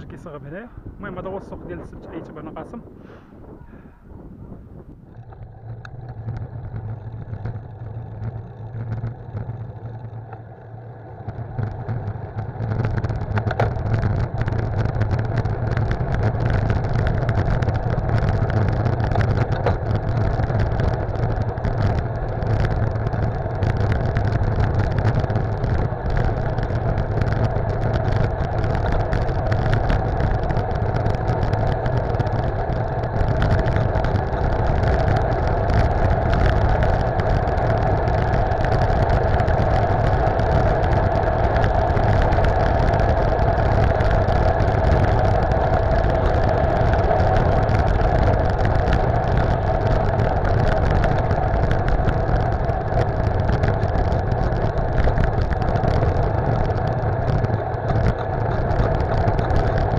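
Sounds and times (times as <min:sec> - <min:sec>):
bicycle tyre road noise: 0:00.0 - 0:59.9
wind rushing over microphone: 0:00.0 - 0:59.9.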